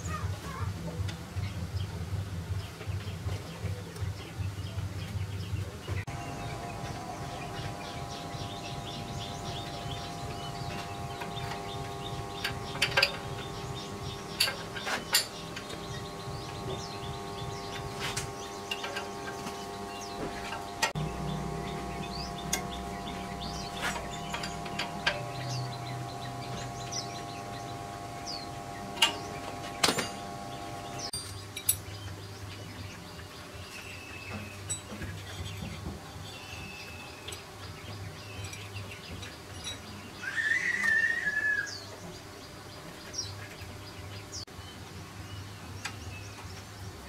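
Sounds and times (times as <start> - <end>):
birds chirping faintly: 1.3 - 47.0
steady high tones: 6.1 - 31.2
metal tools clinking: 14.3 - 15.8, 29.0 - 30.3, 31.1 - 31.9, 38.3 - 39.9.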